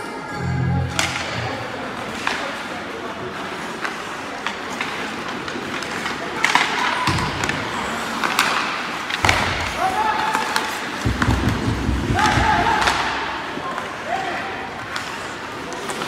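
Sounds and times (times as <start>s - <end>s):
sticks and puck clacking: 0.9s - 16.0s
skates scraping ice: 1.9s - 16.0s
players shouting: 12.1s - 14.6s.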